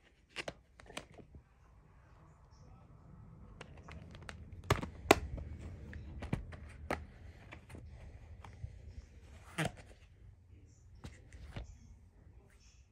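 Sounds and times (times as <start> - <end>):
plastic case clicks and knocks: 3.6 - 7.8.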